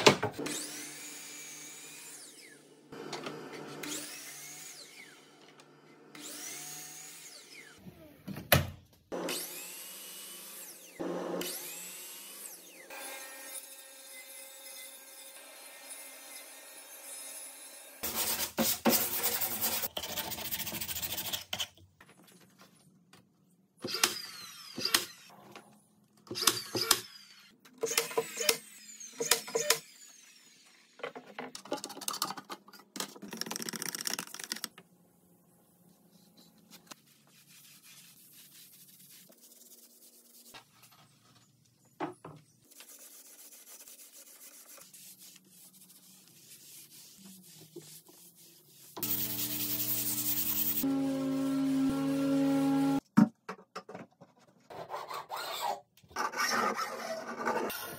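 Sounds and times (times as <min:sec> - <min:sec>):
paint roller rubbing on board: 0:37.0 - 0:40.6, 0:42.8 - 0:50.8.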